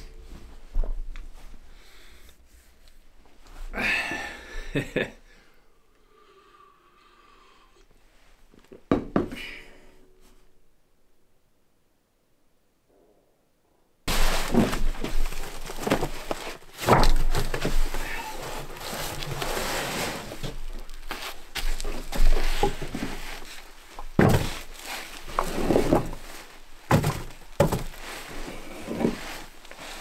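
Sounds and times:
packs thudding on wooden boards: 14.1s - 19.5s, 20.2s - 28.1s
packaging rustling: 14.1s - 30.0s.

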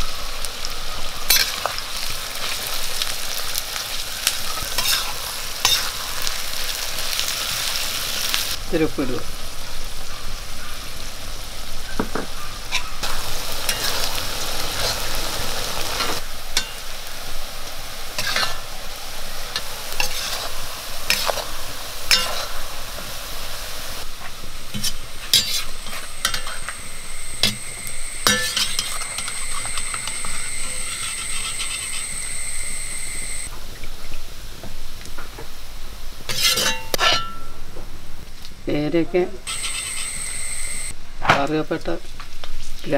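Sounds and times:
onions sizzling in oil: 0.0s - 41.0s
metal skimmer scraping a pan: 4.8s - 5.9s, 18.2s - 18.6s, 20.0s - 21.4s, 24.7s - 32.5s, 36.3s - 37.5s, 39.5s - 40.2s
steady high-pitched tone: 25.9s - 33.5s, 39.5s - 40.9s.

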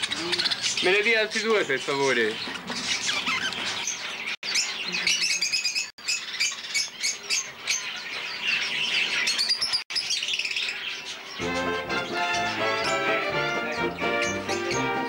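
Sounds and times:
budgerigars chirping: 0.0s - 15.0s
music: 11.4s - 15.0s.

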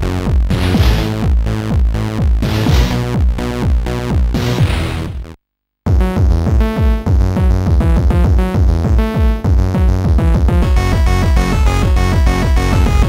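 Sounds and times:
drum-machine beat: 5.9s - 13.0s.

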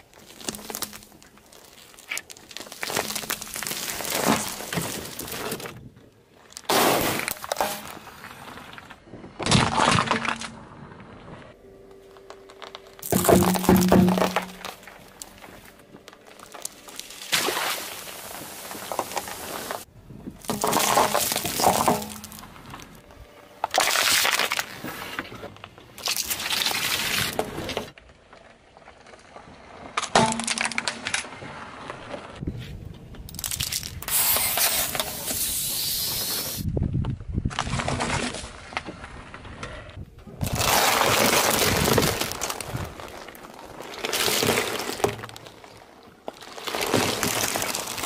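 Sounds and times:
tyre crushing objects: 0.0s - 5.9s, 12.6s - 23.0s, 40.4s - 48.0s.

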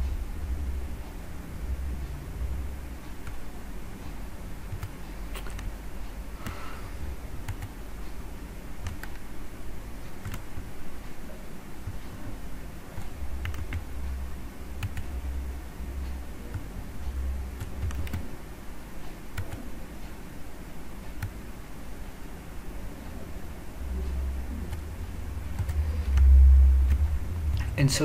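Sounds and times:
steady low hum: 0.0s - 28.0s
mouse and keyboard clicks: 4.7s - 5.7s.

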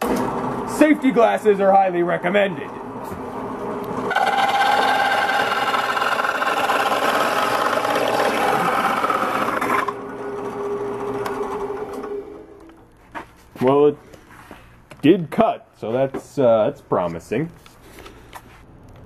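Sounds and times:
drill press humming: 3.4s - 12.8s
hole saw grinding through wood: 4.1s - 11.2s.

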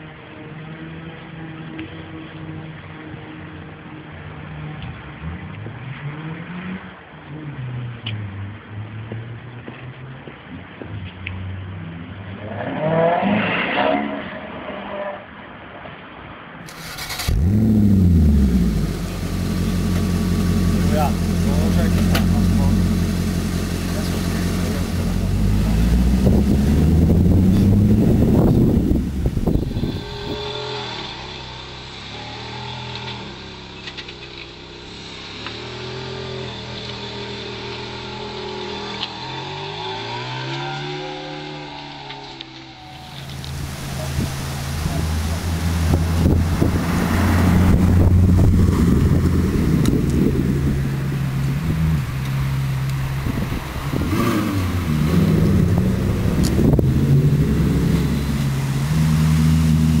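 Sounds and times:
sports car engine passing: 16.7s - 60.0s.

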